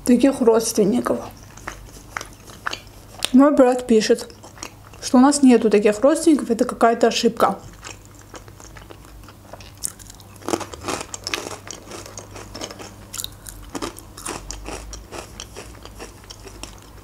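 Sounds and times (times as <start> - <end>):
dry croutons crunching while chewed: 1.5 - 3.4, 7.7 - 17.0.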